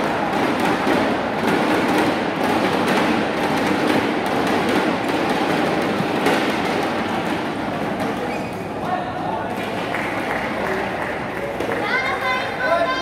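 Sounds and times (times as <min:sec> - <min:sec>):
rhythmic beating from stands: 0:00.0 - 0:08.9
arena crowd din: 0:00.0 - 0:13.0.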